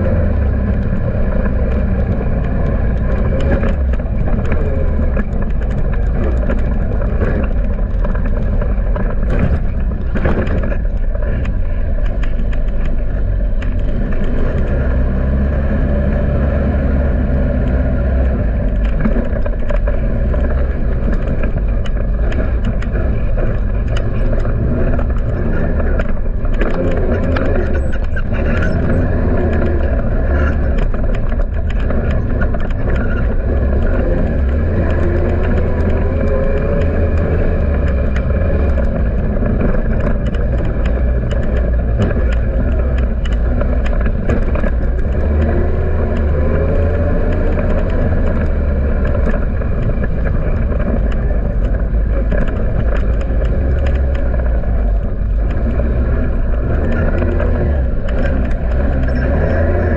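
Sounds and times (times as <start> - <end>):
atv engine running: 0.0 - 59.9
clicks and knocks: 0.1 - 59.9.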